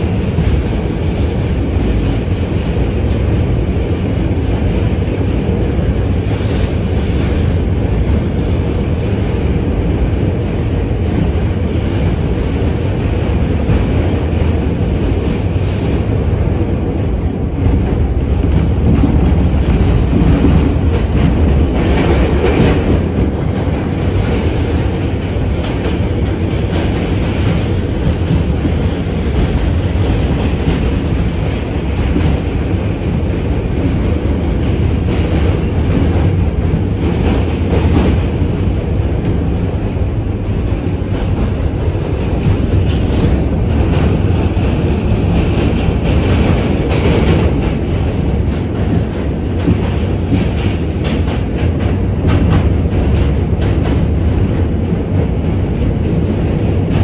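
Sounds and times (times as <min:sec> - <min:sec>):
subway car rumbling: 0:00.0 - 0:57.0.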